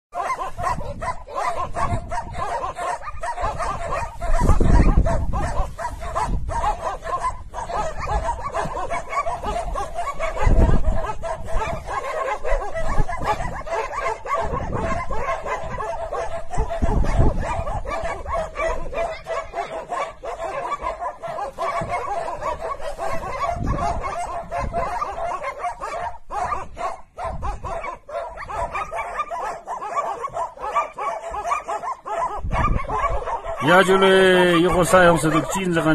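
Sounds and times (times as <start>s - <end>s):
dogs barking: 0.1s - 35.9s.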